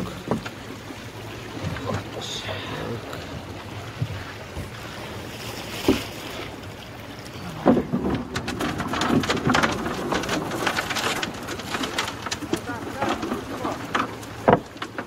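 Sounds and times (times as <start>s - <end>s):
water splashing and dripping: 0.0s - 15.0s
wooden pole knocking riverbed: 7.5s - 15.0s.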